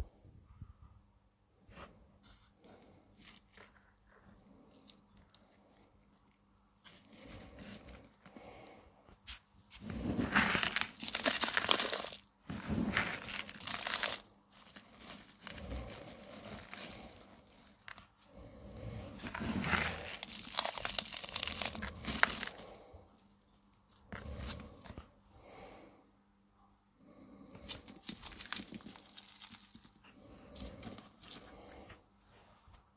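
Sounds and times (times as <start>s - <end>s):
gravel potting mix crunching: 2.6s - 25.9s, 27.2s - 32.4s.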